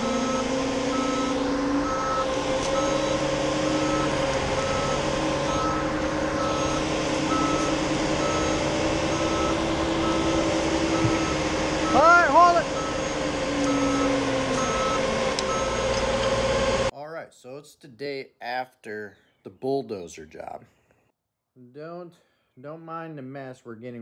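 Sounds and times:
backup alarm beeping: 0.0 - 16.9
diesel engine drone: 0.0 - 16.9.

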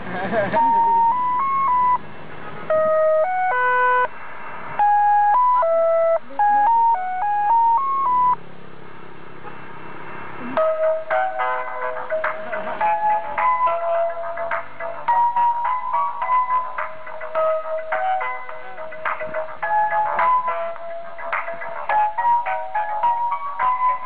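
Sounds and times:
fuller electronic tune: 0.6 - 2.0, 2.7 - 4.1, 4.8 - 8.4
ice cream cart jingle beeping: 0.6 - 2.0, 2.6 - 4.1, 4.8 - 8.4, 10.6 - 24.0.

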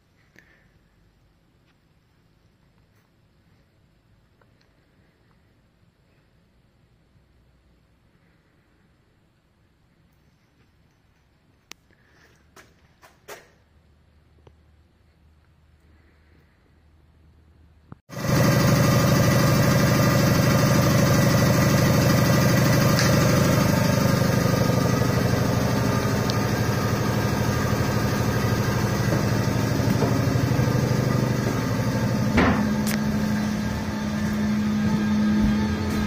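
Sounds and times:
air compressor humming: 18.1 - 36.0.

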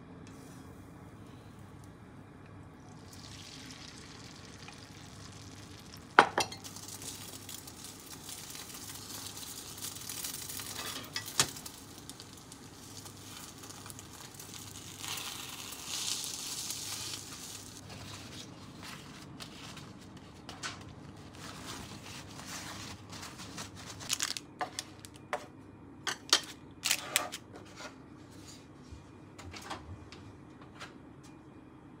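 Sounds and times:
egg sizzling in a pan: 2.9 - 17.8.

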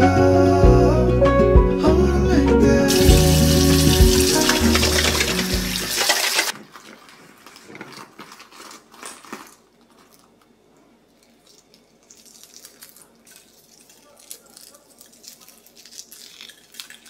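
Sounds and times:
tap water running hard: 2.9 - 6.5
eggshell cracking and peeling: 11.2 - 17.0.

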